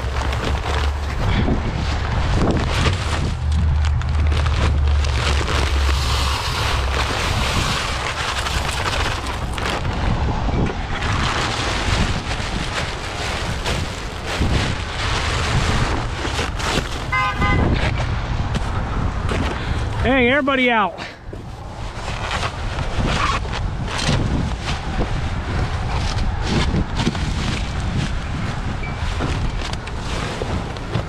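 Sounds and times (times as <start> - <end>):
wind buffeting microphone: 0.0 - 20.4, 21.2 - 31.0
short horn beeping: 17.1 - 17.8.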